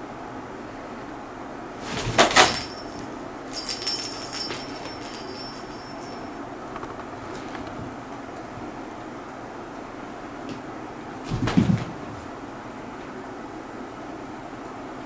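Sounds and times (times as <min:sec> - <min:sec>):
cat scuffling: 0:01.8 - 0:06.0
bell ball jingling: 0:02.4 - 0:06.4.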